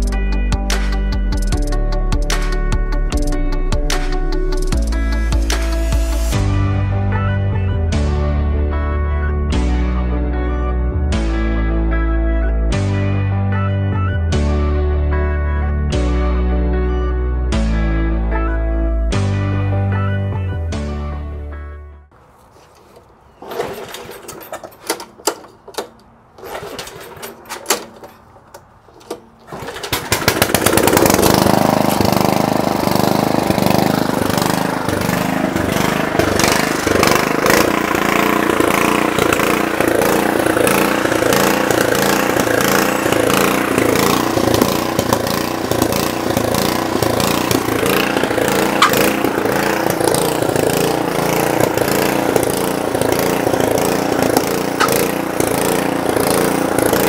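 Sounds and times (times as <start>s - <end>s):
small engine running: 4.0s - 6.5s, 29.4s - 57.0s
recoil starter pulls: 22.6s - 57.0s.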